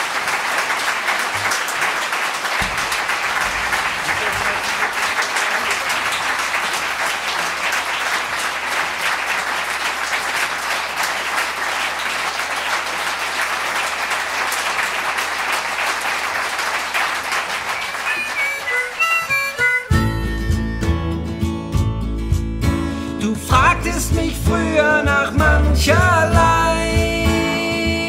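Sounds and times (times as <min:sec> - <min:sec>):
audience applauding: 0:00.0 - 0:20.0
instrument notes: 0:18.1 - 0:21.0.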